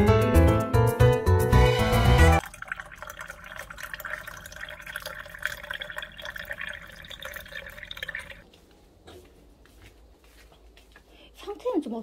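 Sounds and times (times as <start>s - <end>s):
water pouring into a mug: 2.1s - 8.4s.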